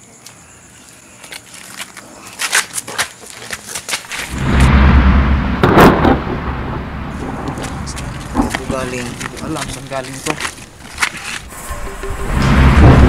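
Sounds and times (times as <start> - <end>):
low rumbling rush: 4.2 - 13.0
crackling clicks: 7.2 - 12.1.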